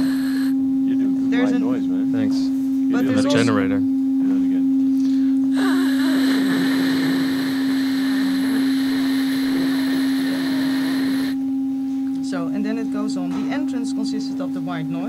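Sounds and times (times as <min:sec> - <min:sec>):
white noise hiss: 0:00.0 - 0:00.6, 0:05.5 - 0:11.4.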